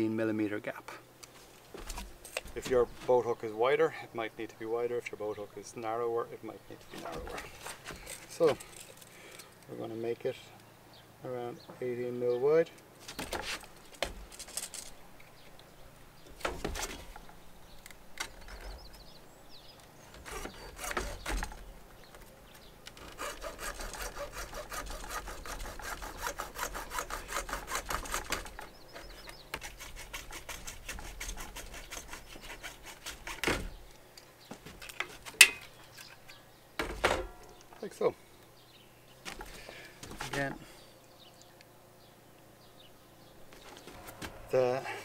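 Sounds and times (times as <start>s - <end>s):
hacksaw cutting plastic pipe: 20.1s - 21.6s, 22.9s - 33.7s
handling knocks: 36.8s - 37.6s.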